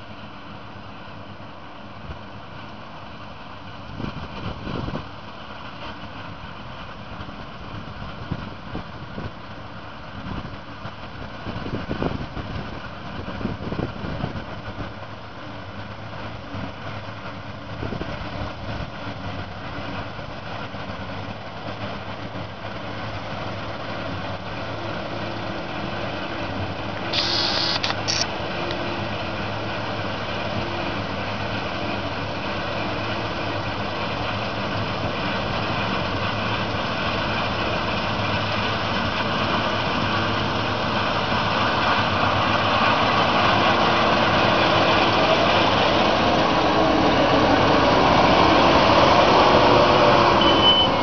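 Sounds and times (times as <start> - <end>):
combine harvester running: 0.0 - 51.0
brief high hiss: 27.1 - 28.3.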